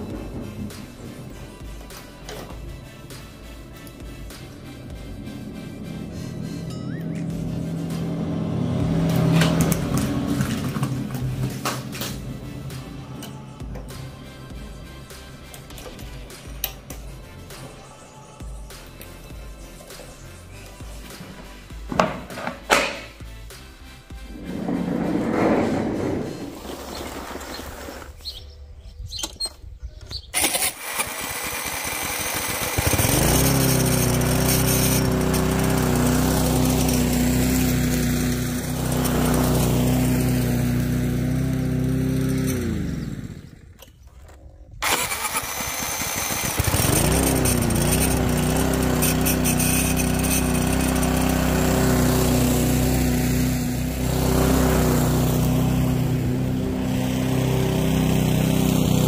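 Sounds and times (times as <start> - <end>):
lawn mower engine running: 0.0 - 17.5, 24.2 - 28.2, 30.3 - 59.0
electric starter cranking: 30.3 - 59.0.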